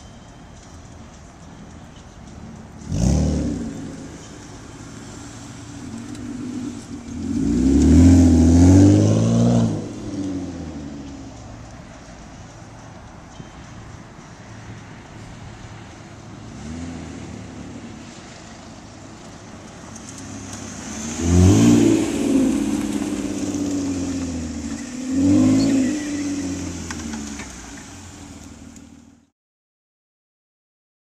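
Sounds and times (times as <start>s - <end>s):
car exhaust revving: 2.6s - 12.9s, 15.3s - 29.2s.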